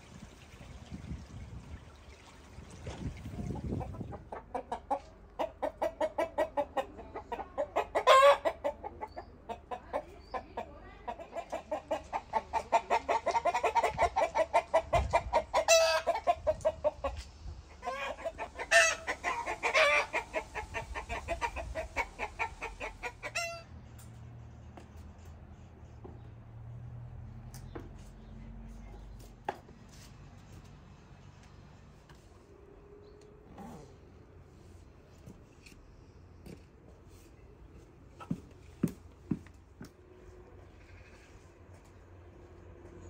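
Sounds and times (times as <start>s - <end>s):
hens clucking: 3.0s - 23.7s
loud chicken calls: 12.8s - 17.1s, 17.7s - 23.7s.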